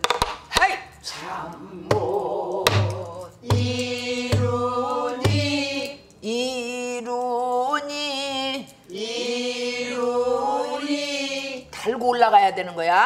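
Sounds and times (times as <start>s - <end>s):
barrel drum struck: 2.7s - 5.5s.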